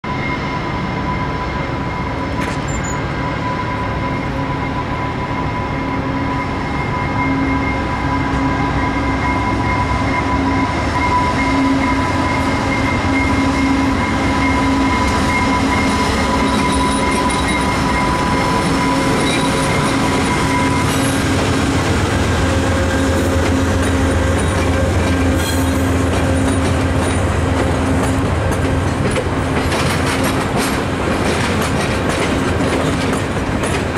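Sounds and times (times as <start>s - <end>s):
deep train rumble: 0.0s - 33.9s
diesel locomotive engine: 0.0s - 33.9s
train wheels squealing: 0.1s - 28.8s
wheels clicking over rail joints: 23.4s - 33.9s.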